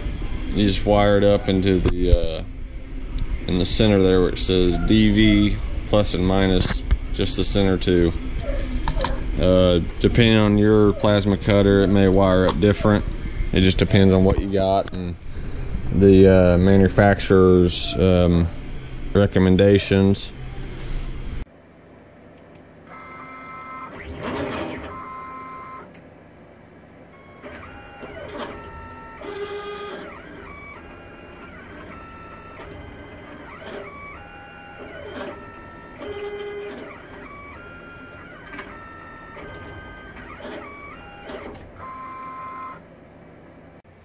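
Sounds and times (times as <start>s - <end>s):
stepper motors whining: 22.9s - 26.0s, 27.1s - 42.8s.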